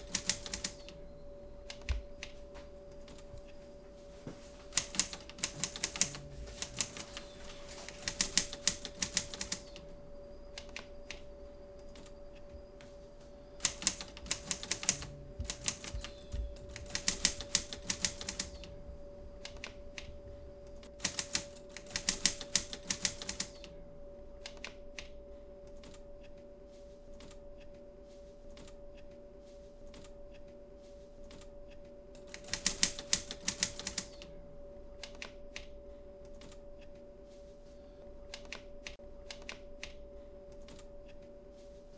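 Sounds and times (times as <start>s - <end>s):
typewriter keys striking: 0.0s - 0.9s, 4.7s - 7.3s, 7.9s - 9.8s, 13.6s - 18.7s, 21.0s - 23.6s, 32.3s - 34.2s
steady low hum: 0.0s - 41.9s.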